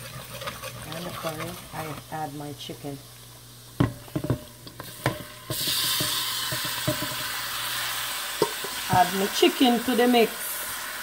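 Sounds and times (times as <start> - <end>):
chicken sizzling in hot oil: 0.0 - 11.0
metal knocking on pot: 3.8 - 7.2.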